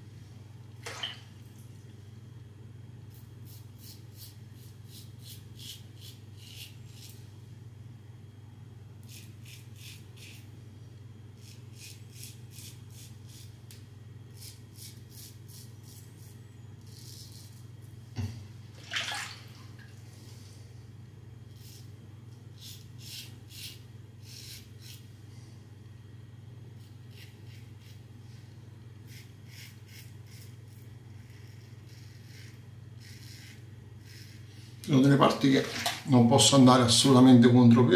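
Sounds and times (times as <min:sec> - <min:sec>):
steady low hum: 0:00.0 - 0:37.9
razor scraping stubble: 0:03.1 - 0:07.2, 0:09.0 - 0:10.5, 0:11.4 - 0:17.6, 0:22.6 - 0:25.1, 0:26.8 - 0:28.0, 0:29.1 - 0:35.4.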